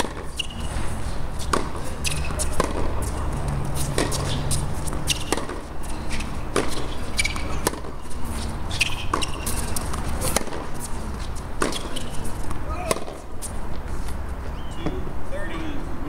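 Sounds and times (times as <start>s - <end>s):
racket hitting tennis ball: 0.0s - 14.2s
tennis ball bouncing: 0.0s - 15.1s
shoe squeaks: 0.0s - 15.8s.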